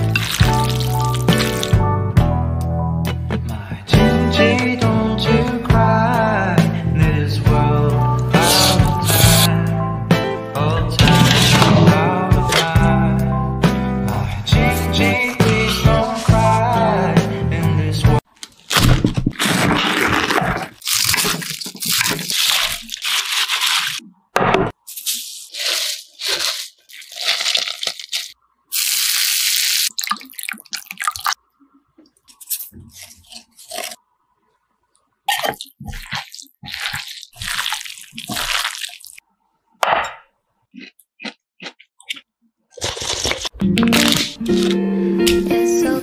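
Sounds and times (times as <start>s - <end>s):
knife cutting crunchy cabbage: 0.0s - 1.7s, 8.4s - 9.5s, 11.0s - 11.8s, 18.4s - 24.0s, 24.9s - 29.2s, 32.4s - 34.0s, 35.3s - 39.2s, 41.2s - 44.8s
hot oil sizzling: 28.7s - 30.0s.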